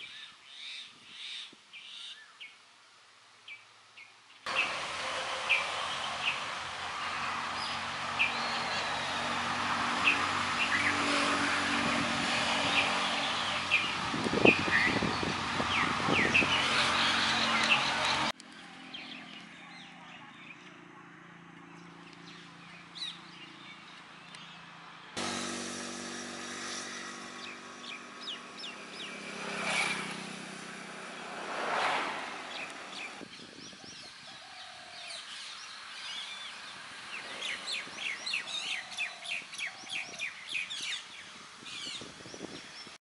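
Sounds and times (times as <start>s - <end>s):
birds chirping and calling: 10.0s - 18.3s, 26.6s - 30.7s, 32.4s - 42.9s.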